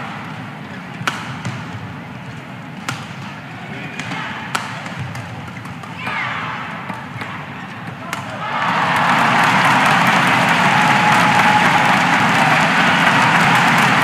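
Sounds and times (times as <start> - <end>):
indoor crowd murmur: 0.0 - 14.0
rackets striking shuttlecock: 1.0 - 1.9, 2.7 - 8.4.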